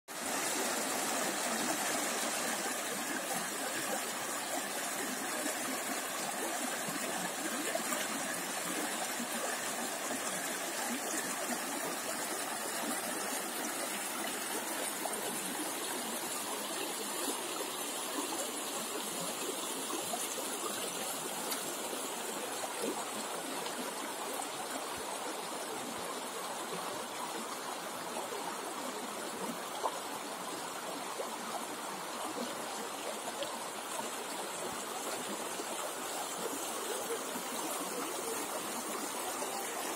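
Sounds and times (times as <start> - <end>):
river babbling over stones: 0.1 - 39.9.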